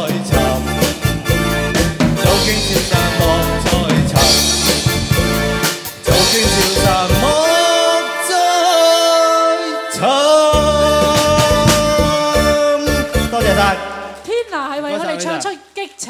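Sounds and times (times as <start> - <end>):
man singing into a microphone: 0.0 - 1.0, 2.2 - 4.8, 6.0 - 14.0
keyboard and drums: 0.0 - 14.3.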